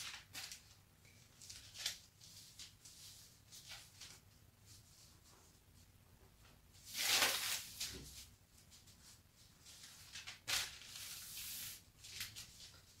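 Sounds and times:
paper rustling and crinkling: 0.0 - 5.2, 6.8 - 13.0.

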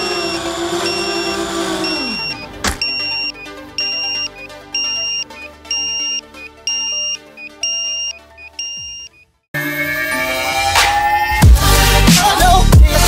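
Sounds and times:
alarm buzzer beeping: 0.0 - 9.4
background music: 0.0 - 13.0.

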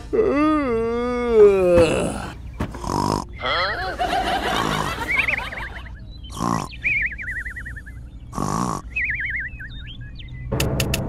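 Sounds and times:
cartoon snoring: 0.1 - 3.5, 6.3 - 6.8, 8.3 - 8.9.

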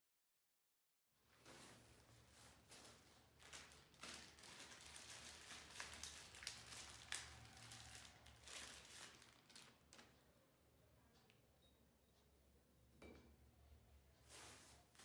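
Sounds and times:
plastic bags crinkling: 1.4 - 10.2.

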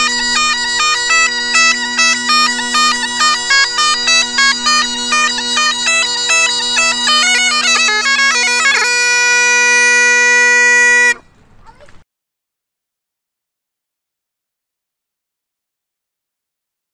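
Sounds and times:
bagpipes playing: 0.0 - 11.2.

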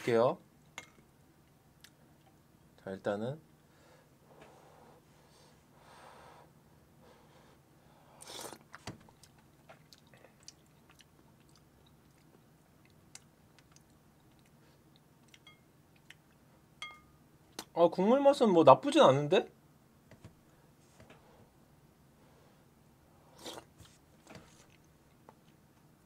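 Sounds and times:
quiet chewing: 8.2 - 16.5, 23.4 - 25.9
spoon clinking against bowl: 15.4 - 15.6, 16.8 - 17.2.

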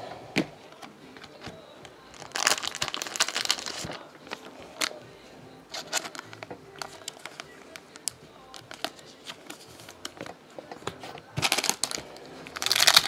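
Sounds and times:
cards rustling and clicking: 0.3 - 5.0, 5.7 - 13.0
foil wrapper tearing and crinkling: 2.2 - 4.0, 5.8 - 9.0, 11.4 - 13.0.

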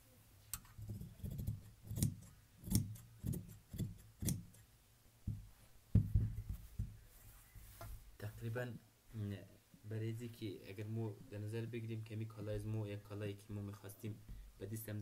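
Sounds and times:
shears snipping fabric: 1.2 - 4.6.

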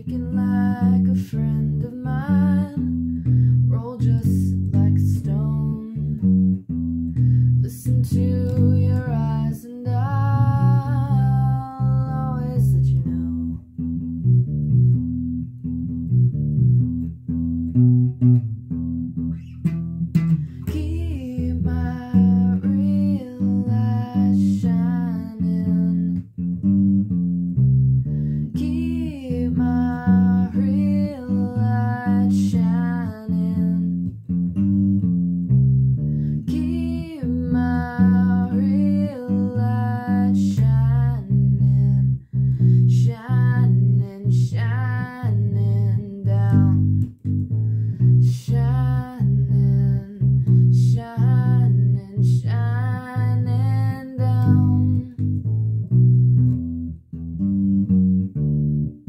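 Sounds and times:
woman singing: 0.0 - 6.4, 7.2 - 13.6, 20.5 - 26.3, 28.4 - 34.2, 36.3 - 47.2, 48.2 - 55.3
electric bass guitar bassline: 0.0 - 59.0.

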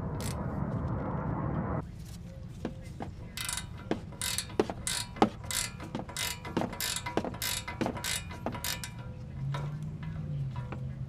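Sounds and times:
ratcheting wrench clicking: 3.4 - 10.7.

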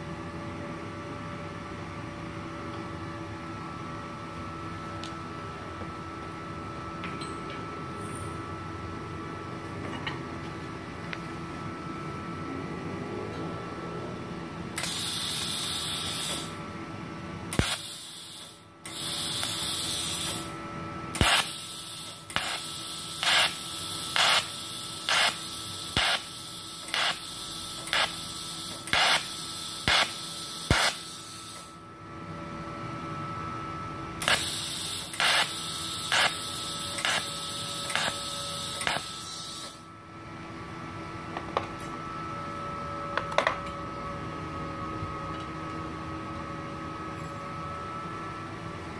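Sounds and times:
welding arc hissing: 14.8 - 16.6, 17.5 - 20.6, 21.2 - 31.8, 34.2 - 39.9.

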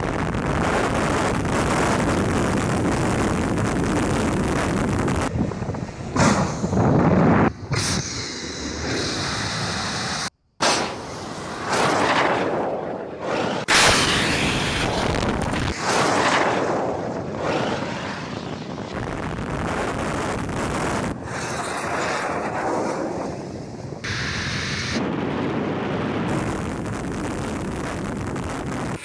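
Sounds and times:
wind noise: 0.0 - 29.0.

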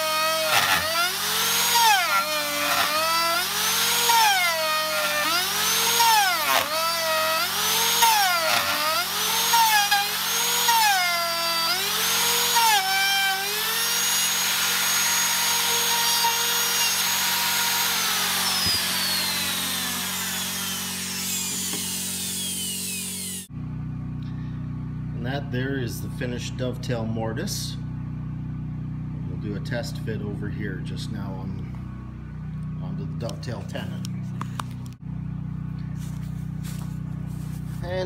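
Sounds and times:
router motor whine cutting wood: 0.0 - 23.5.

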